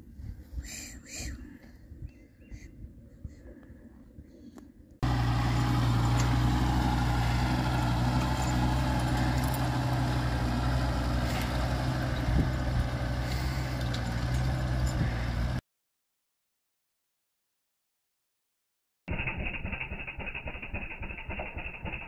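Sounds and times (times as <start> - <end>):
engine running with deep hum: 5.0 - 15.6.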